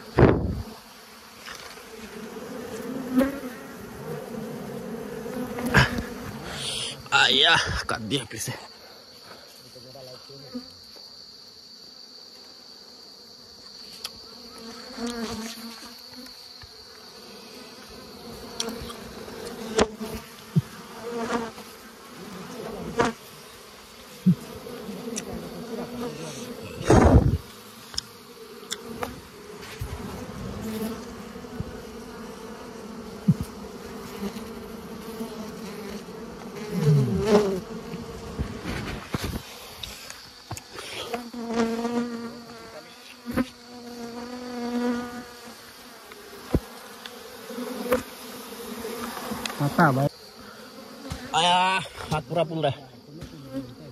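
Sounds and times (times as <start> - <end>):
bees buzzing: 0.0 - 9.5, 10.4 - 53.9.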